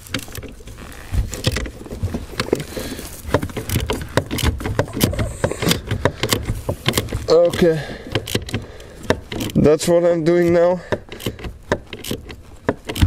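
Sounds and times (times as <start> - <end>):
hand ratchet clicking: 2.4 - 9.7, 10.3 - 13.0.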